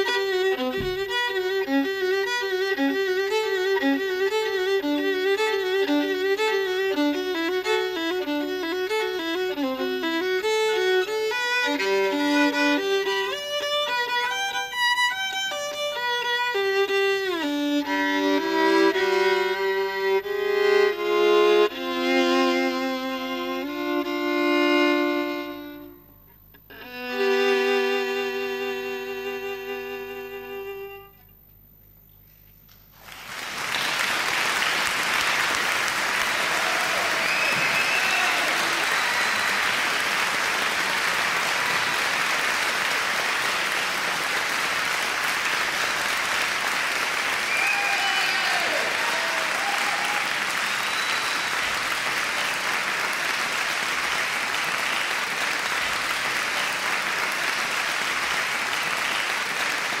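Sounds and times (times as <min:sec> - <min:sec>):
violin music: 0:00.0 - 0:31.3
audience applauding: 0:32.9 - 1:00.0
whoops and cheers: 0:36.4 - 0:39.6, 0:47.4 - 0:51.6.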